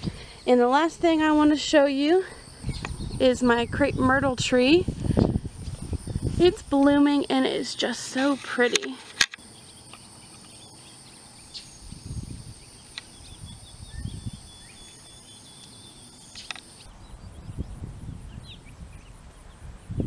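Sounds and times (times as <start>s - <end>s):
wind buffeting microphone: 0.0s - 7.6s, 11.6s - 15.2s, 16.4s - 20.0s
insects droning: 0.0s - 20.0s.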